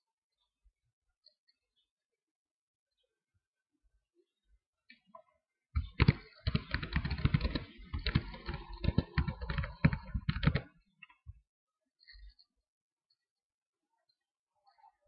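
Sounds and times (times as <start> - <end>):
computer keyboard typing: 5.8 - 10.8.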